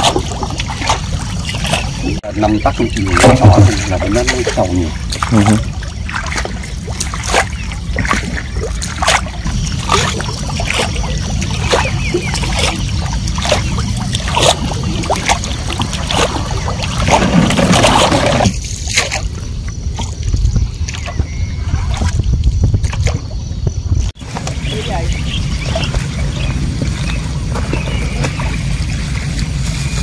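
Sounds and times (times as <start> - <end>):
water sloshing against hull: 0.0 - 30.0.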